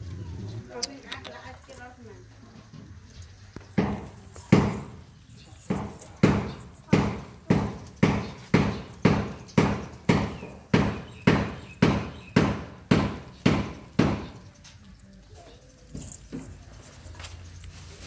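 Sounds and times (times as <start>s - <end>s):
steady thuds: 3.6s - 14.5s.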